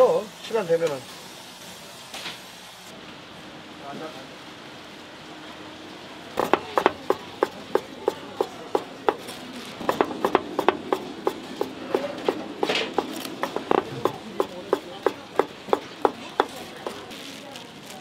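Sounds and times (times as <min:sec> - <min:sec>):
knife chopping on cutting board: 0:06.4 - 0:17.0.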